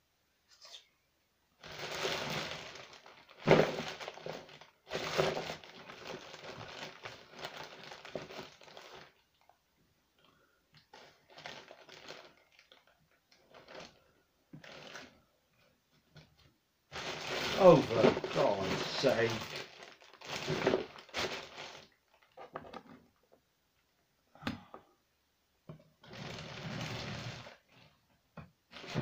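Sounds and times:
packaging rustling and crumpling: 1.6s - 9.5s, 10.9s - 15.2s, 16.9s - 22.6s, 26.0s - 27.7s, 28.7s - 29.0s.

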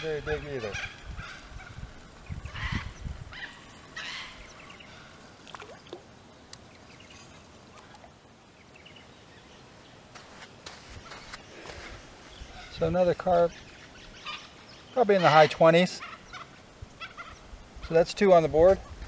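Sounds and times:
fish splashing in water: 5.3s - 6.1s.

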